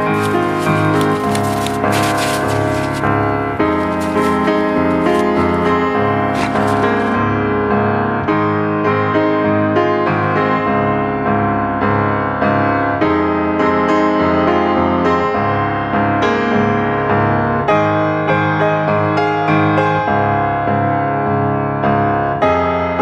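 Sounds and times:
background piano music: 0.0s - 23.0s.

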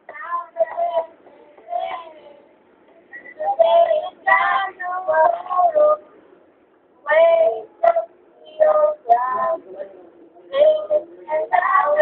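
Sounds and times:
child singing: 0.1s - 2.6s, 3.4s - 6.0s, 7.0s - 9.8s, 10.5s - 12.0s.

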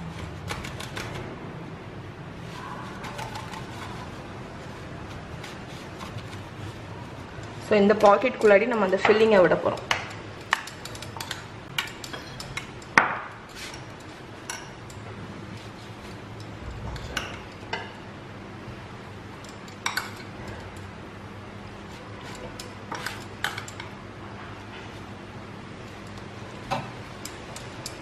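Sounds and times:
steady low hum: 0.0s - 28.0s
utensils clinking on pan and bowl: 7.1s - 15.1s, 19.4s - 20.9s, 22.3s - 23.9s.

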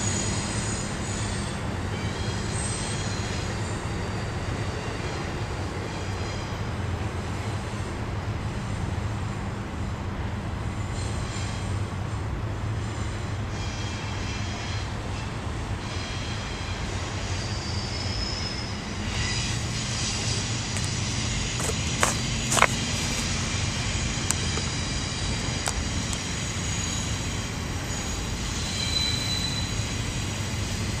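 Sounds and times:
train wheels rumbling on rail: 0.0s - 31.0s
faint wheel squeals: 12.9s - 23.4s, 26.4s - 30.2s.

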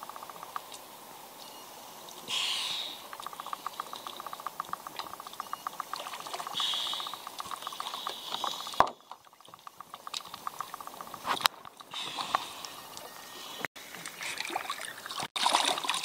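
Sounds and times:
fast steady ticking: 2.3s - 12.9s
water sloshing and splashing: 3.1s - 16.0s.

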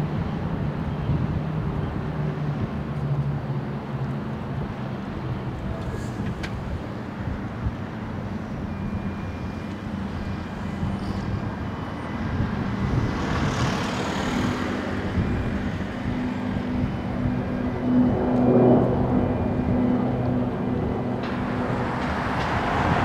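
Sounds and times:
ferry engine drone: 0.0s - 23.0s
rushing noise: 8.6s - 23.0s.

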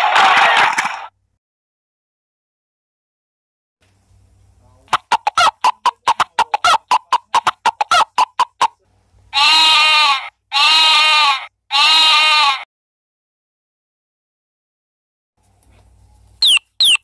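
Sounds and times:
recorded hen clucking: 4.8s - 8.8s
sheep bleats: 9.3s - 12.7s.

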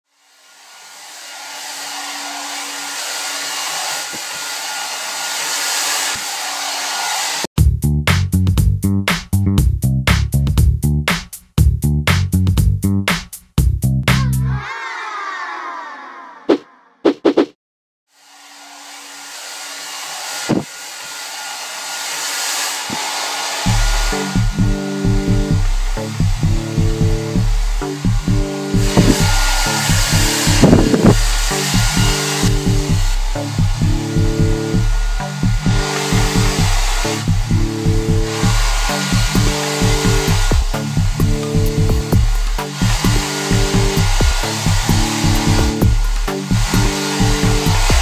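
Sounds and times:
hair dryer running: 0.1s - 7.5s, 18.1s - 48.0s
funky music with bass and drums: 7.6s - 14.6s, 23.7s - 48.0s.

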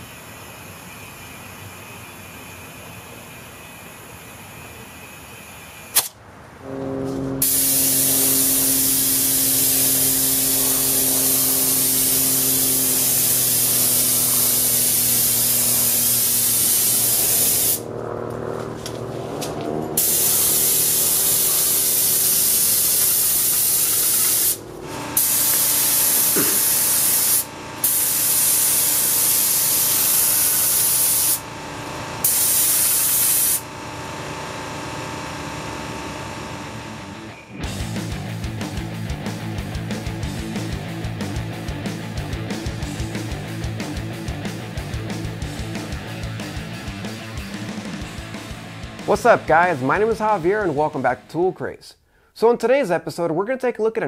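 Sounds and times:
air compressor humming: 0.0s - 37.5s
sharp click: 5.9s - 6.2s
paint spray gun hissing: 7.4s - 17.8s, 20.0s - 31.5s, 32.2s - 33.7s.

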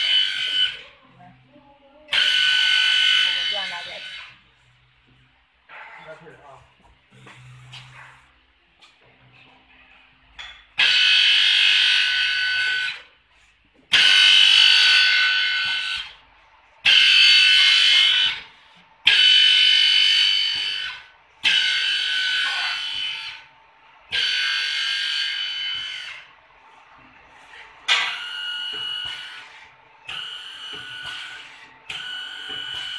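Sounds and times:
drilling machine whine and hiss: 0.0s - 0.8s, 2.1s - 4.4s, 10.8s - 13.0s, 13.9s - 16.2s, 16.8s - 32.9s.

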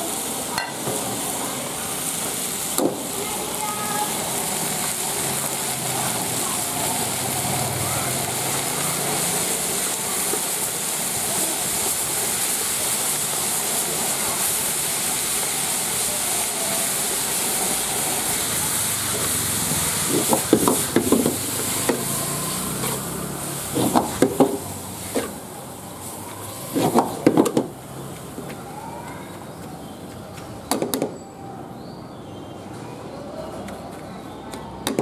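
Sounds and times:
beef and onions sizzling in a wok: 0.0s - 29.0s
metal ladle scraping a wok: 22.2s - 24.0s.

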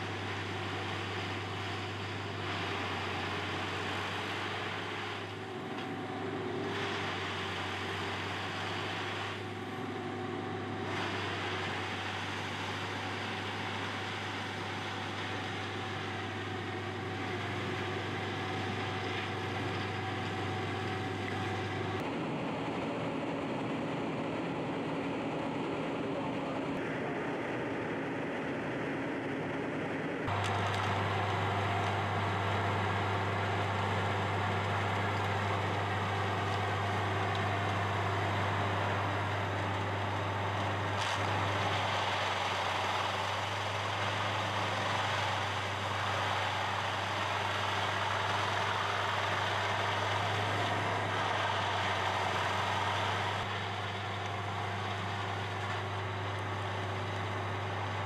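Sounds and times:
wood chipper engine running: 0.0s - 58.0s
chipping hiss: 30.3s - 58.0s.

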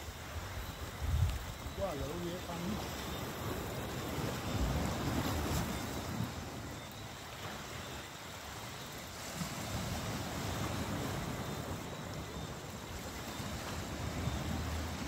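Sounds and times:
sea surf: 0.0s - 15.0s
wind buffeting microphone: 0.1s - 6.8s.

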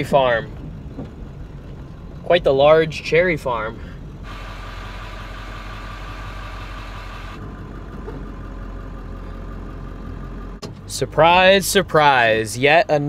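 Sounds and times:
diesel pickup engine hum: 0.0s - 13.0s
road hiss: 3.8s - 7.4s.

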